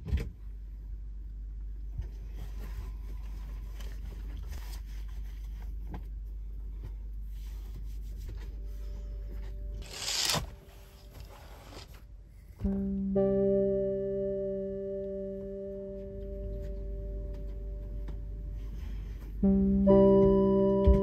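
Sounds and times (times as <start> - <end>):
steady low hum: 0.0 - 21.0
rustling and handling sounds: 2.0 - 12.1.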